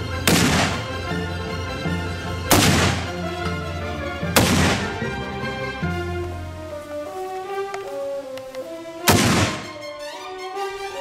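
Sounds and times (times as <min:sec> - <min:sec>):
background music: 0:00.0 - 0:11.0
rifle shots: 0:00.2 - 0:01.0, 0:02.5 - 0:03.2, 0:04.4 - 0:05.0, 0:09.1 - 0:09.8.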